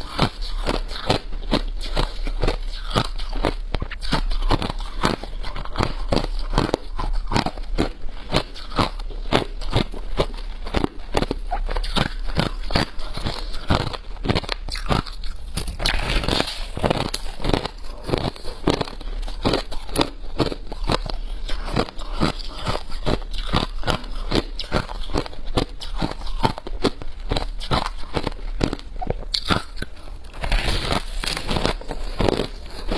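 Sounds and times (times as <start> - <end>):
person crunching ice: 0.0 - 32.9.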